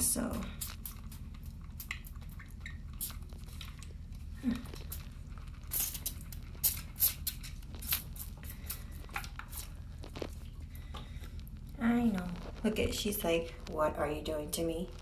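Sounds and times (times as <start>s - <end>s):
pump spray bottle squirting: 5.7s - 9.8s.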